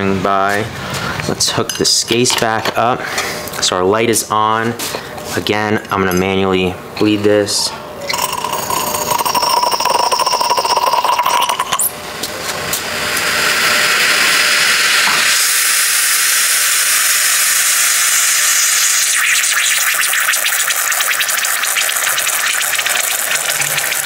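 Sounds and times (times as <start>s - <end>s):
espresso machine steam hissing: 8.1s - 11.9s, 12.7s - 24.0s.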